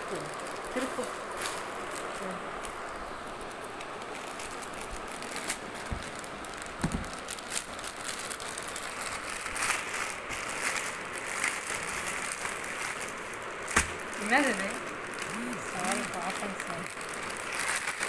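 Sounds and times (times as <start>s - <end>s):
plastic bag crinkling: 0.0s - 18.0s
scissors cutting plastic: 3.8s - 18.0s.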